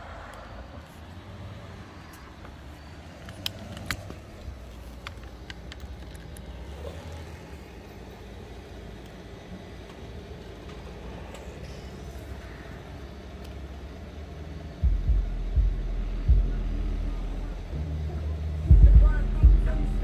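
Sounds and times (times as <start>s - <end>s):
car engine low rumble: 0.0s - 20.0s
sharp clicks: 3.2s - 7.2s.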